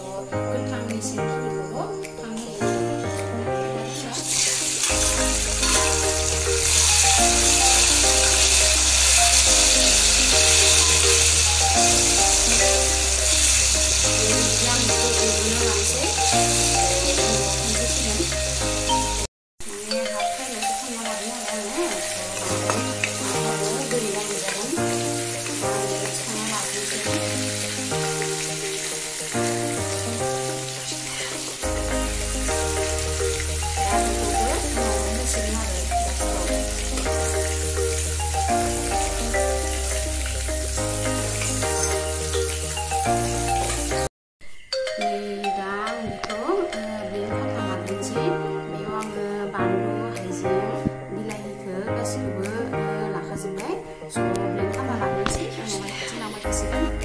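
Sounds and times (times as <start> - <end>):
vegetables sizzling in hot oil: 3.6 - 44.7
background music with bass: 27.2 - 44.1.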